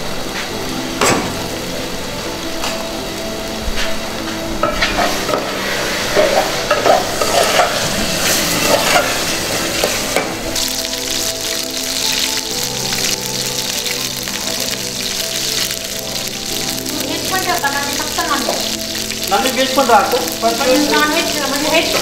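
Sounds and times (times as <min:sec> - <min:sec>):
hot oil sizzling in a pan: 0:00.0 - 0:22.0
spoon scraping a metal pot: 0:06.2 - 0:10.0.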